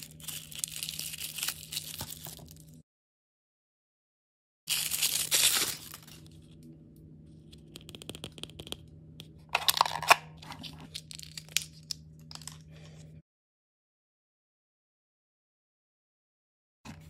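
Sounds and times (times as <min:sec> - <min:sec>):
foil wrapper rustling: 0:00.0 - 0:02.8, 0:04.7 - 0:06.6
faint steady hum: 0:04.8 - 0:13.2.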